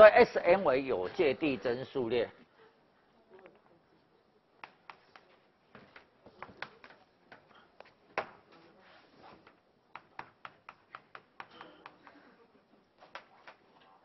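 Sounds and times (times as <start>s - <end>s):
chalk tapping on blackboard: 4.6s - 5.4s, 9.4s - 12.2s.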